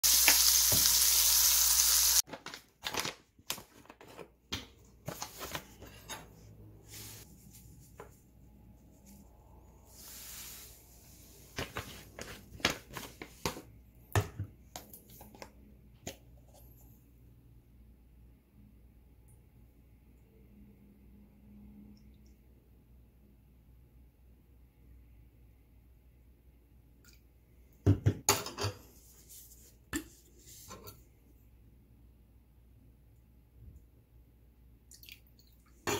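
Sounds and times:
fish sizzling in a frying pan: 0:00.0 - 0:02.2
plastic pouch crinkling: 0:02.2 - 0:03.9
granules scooped and poured: 0:09.9 - 0:12.0.

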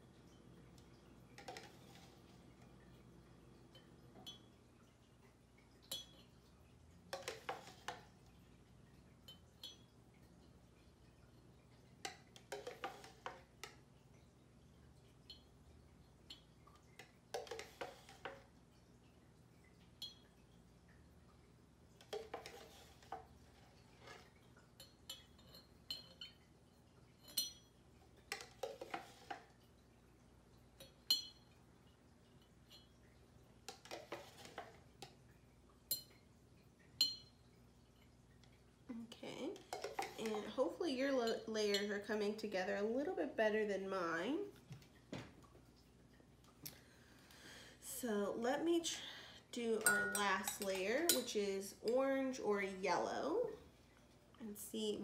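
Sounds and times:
metal spoon clinking on glass jar: 0:05.9 - 0:06.4, 0:24.8 - 0:26.4, 0:27.2 - 0:29.2, 0:30.8 - 0:31.5, 0:49.7 - 0:51.4.

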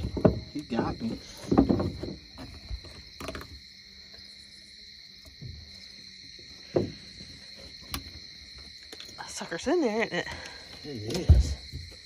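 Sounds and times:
night insects chirping: 0:00.0 - 0:12.0.

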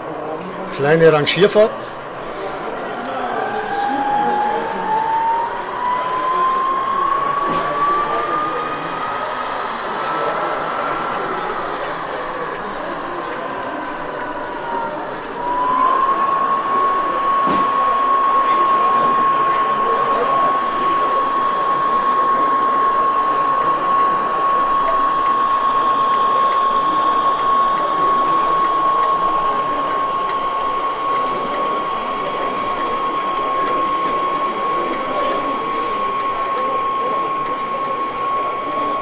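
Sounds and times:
hall chatter: 0:00.0 - 0:39.0
model locomotive whine: 0:00.0 - 0:39.0.

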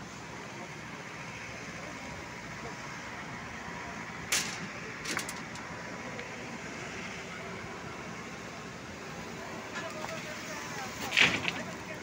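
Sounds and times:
construction site din: 0:00.0 - 0:12.0
sharp metal clank: 0:04.3 - 0:05.4.

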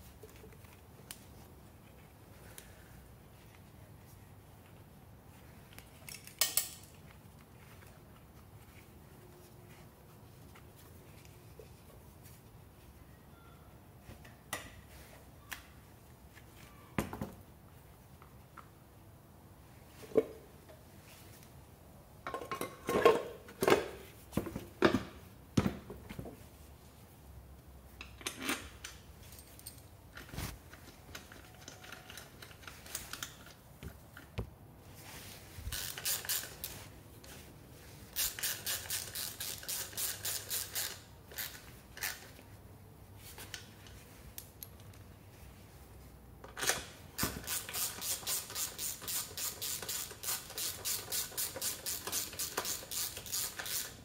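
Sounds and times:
ratchet wrench clicking: 0:35.7 - 0:36.7, 0:38.2 - 0:42.2, 0:47.4 - 0:54.0.

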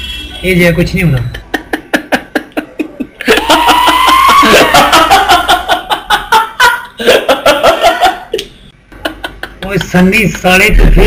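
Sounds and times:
man laughing loudly: 0:01.3 - 0:08.4, 0:09.0 - 0:10.0.

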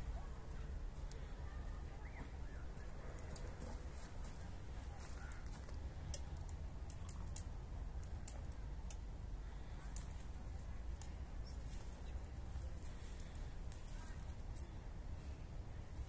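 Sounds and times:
sharp irregular clicks and crackles: 0:05.3 - 0:11.2.

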